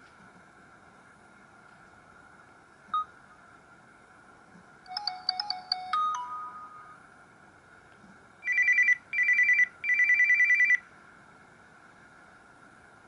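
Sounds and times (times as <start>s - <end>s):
electronic chime ringtone: 4.9s - 7.0s, 8.4s - 10.8s.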